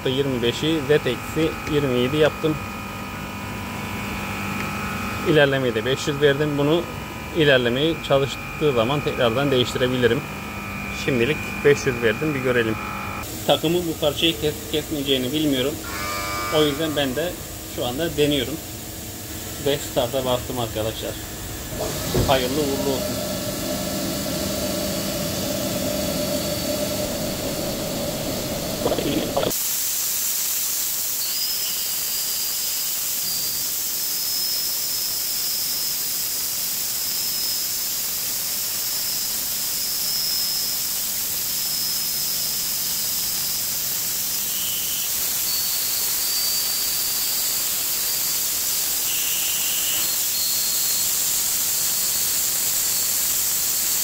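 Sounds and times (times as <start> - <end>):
machine hum with pitched tones: 0.0 - 29.6
milling hiss with high whine: 11.0 - 15.8, 16.4 - 21.2, 22.0 - 54.0.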